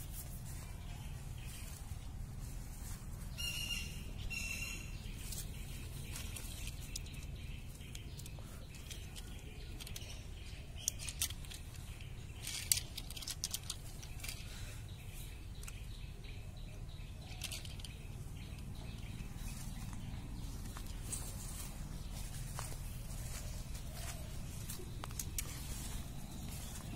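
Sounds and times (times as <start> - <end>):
handling clicks and rustles: 5.1 - 14.6, 17.0 - 26.9.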